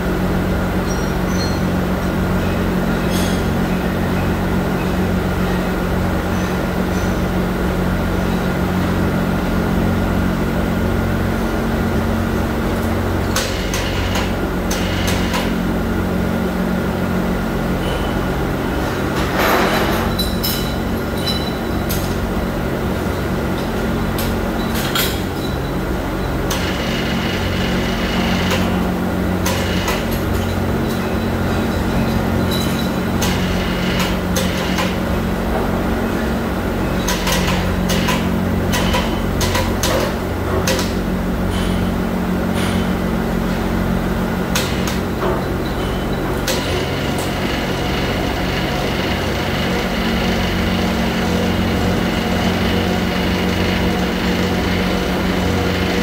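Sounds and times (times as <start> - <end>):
factory machinery hum: 0.0 - 56.0.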